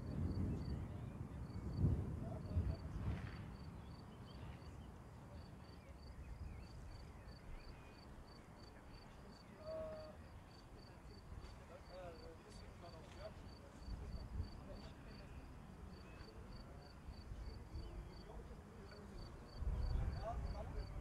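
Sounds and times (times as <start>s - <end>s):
insect chirping: 5.6s - 11.0s.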